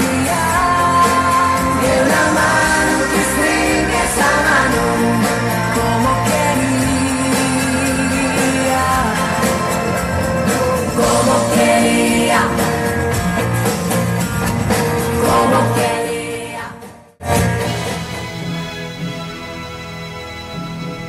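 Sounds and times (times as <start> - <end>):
female vocals: 0.0 - 9.9
drums: 0.0 - 21.0
electric guitar: 0.0 - 21.0.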